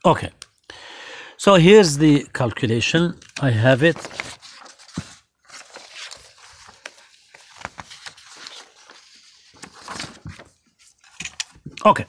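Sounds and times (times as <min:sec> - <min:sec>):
paper pages rustling: 0:03.2 - 0:12.0.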